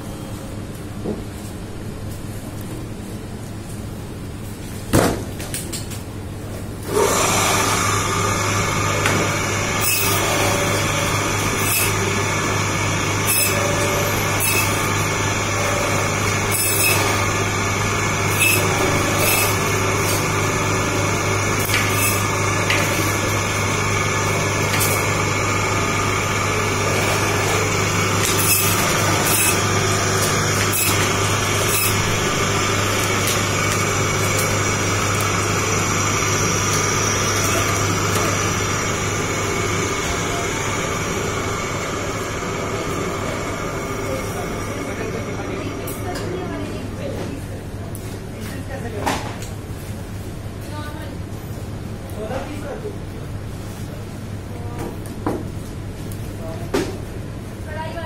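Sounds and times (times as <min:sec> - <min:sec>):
meat band saw humming: 0:06.8 - 0:47.6
band saw cutting meat: 0:06.9 - 0:46.2.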